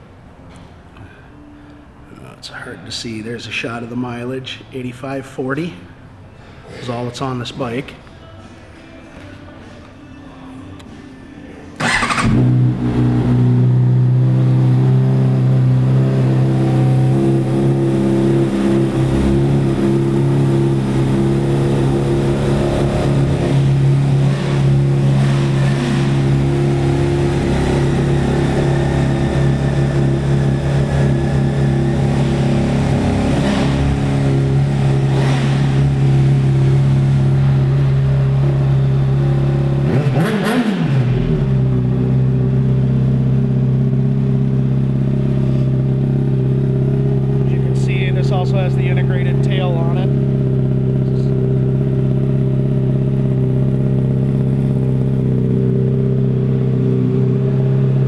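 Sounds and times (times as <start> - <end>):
motorcycle engine running steadily: 11.8 - 58.0.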